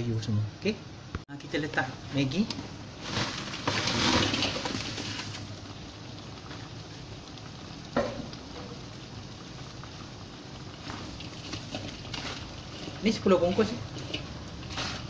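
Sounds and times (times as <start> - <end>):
broth bubbling: 4.6 - 15.0.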